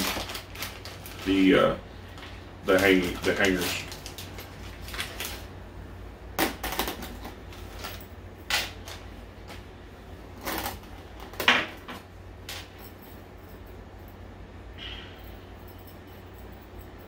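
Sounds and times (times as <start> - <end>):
plastic bag crinkling: 0.0 - 5.6.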